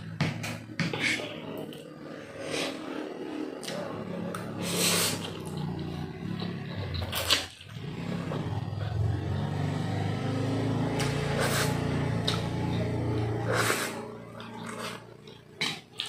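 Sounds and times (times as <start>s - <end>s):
person slurping noodles: 0.9s - 6.0s, 11.0s - 12.4s, 13.3s - 16.0s.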